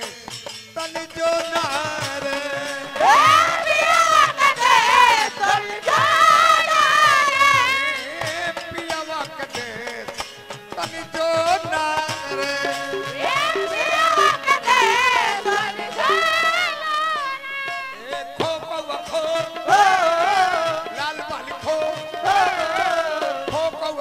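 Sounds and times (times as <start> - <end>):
man singing folk song: 0.0 - 3.3, 7.9 - 16.2, 17.9 - 24.0
instrumental accompaniment: 0.0 - 24.0.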